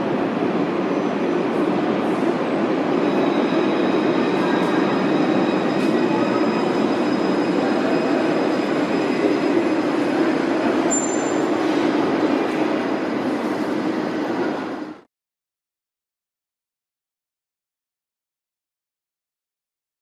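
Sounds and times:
tram wheels rumbling on rail: 0.0s - 15.1s
high wheel squeal: 2.8s - 12.0s.

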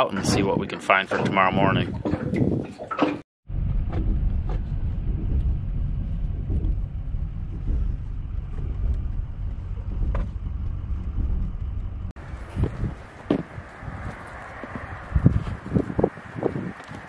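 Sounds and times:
road and engine rumble: 3.5s - 17.0s.

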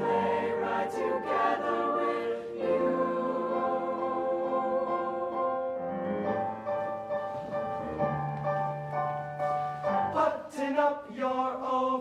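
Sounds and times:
choir singing held chords: 0.0s - 5.9s.

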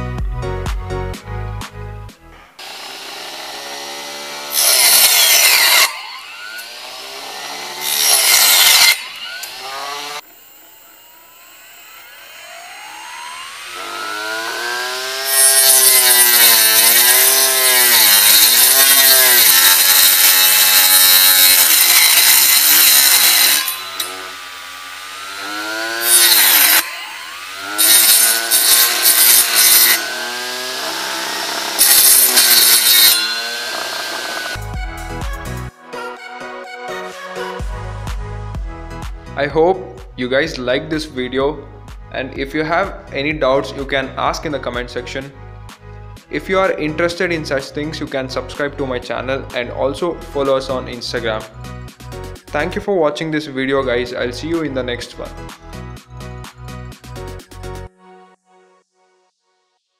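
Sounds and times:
saw cutting wood: 2.6s - 35.0s
motor whining: 5.8s - 16.3s, 21.6s - 35.0s.

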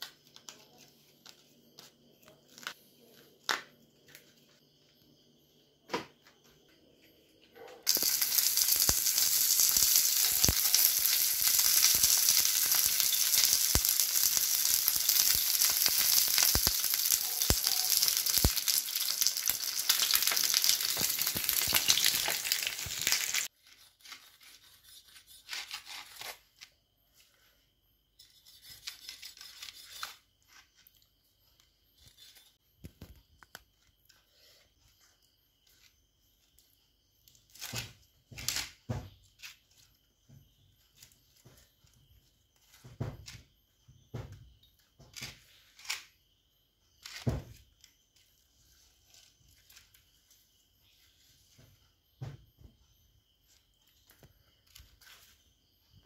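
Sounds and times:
fish sizzling in oil: 7.9s - 23.5s
leaf wrapping rustling: 7.9s - 23.8s.

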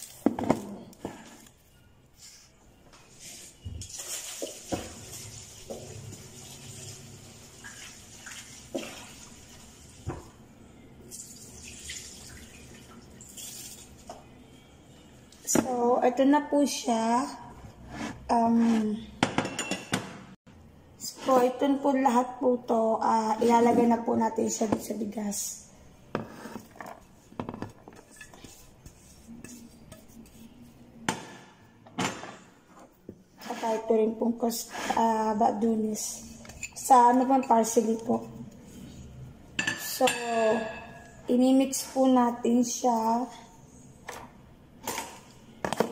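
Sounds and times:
tap water running: 3.8s - 10.4s, 11.1s - 14.1s.

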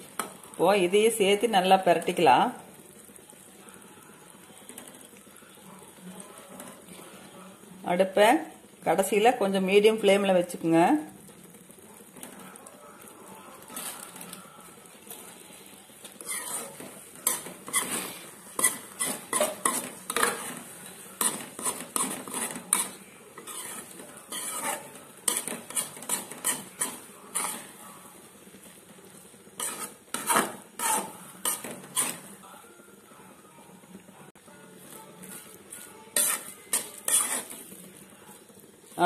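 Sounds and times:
steel spoon scraping metal pan: 16.2s - 27.8s, 29.6s - 32.3s, 36.1s - 37.8s.

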